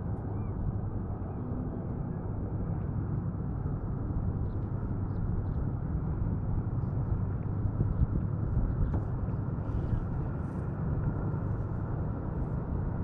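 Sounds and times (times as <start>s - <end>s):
wind buffeting microphone: 3.7s - 13.0s.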